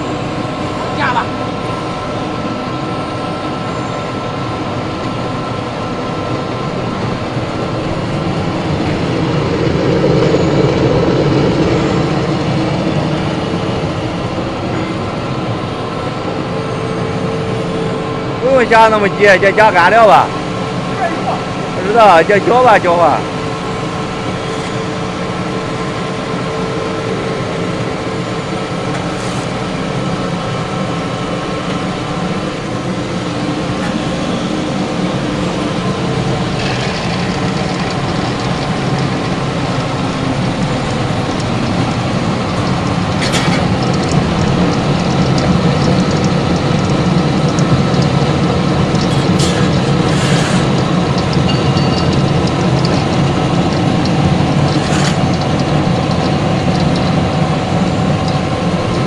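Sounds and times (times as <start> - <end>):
pellet machine rattling and humming: 17.3 - 59.0.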